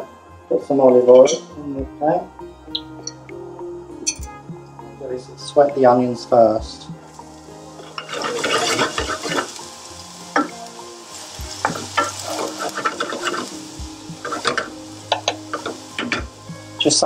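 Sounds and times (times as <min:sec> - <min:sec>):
onion sizzling in oil: 0:06.7 - 0:17.0
wooden spoon scraping a pan: 0:07.7 - 0:16.2.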